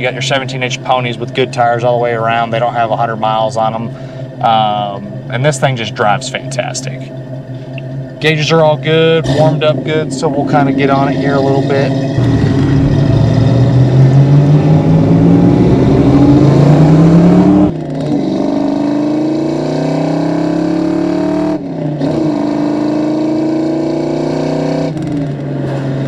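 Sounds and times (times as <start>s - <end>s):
car engine accelerating: 0.0s - 26.0s.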